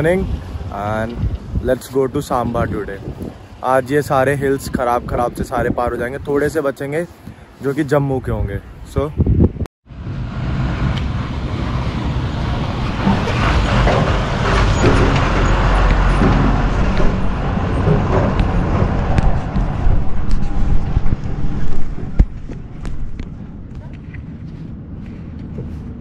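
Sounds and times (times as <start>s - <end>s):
truck passing on dirt road: 9.9s - 23.7s.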